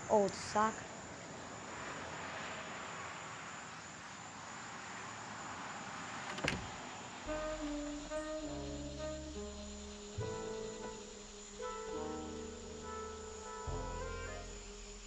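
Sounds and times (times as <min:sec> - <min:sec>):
room tone hiss: 0:06.4 - 0:15.0.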